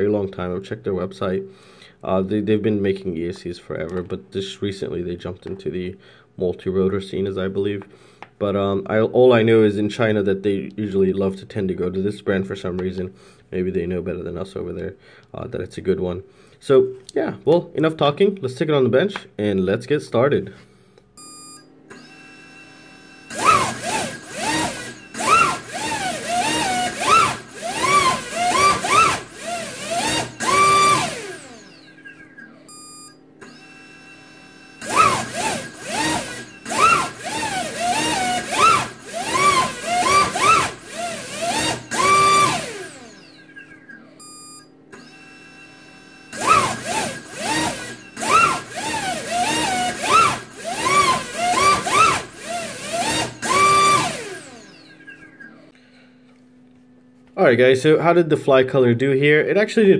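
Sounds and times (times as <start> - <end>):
drone motor whining: 21.9 - 55.8.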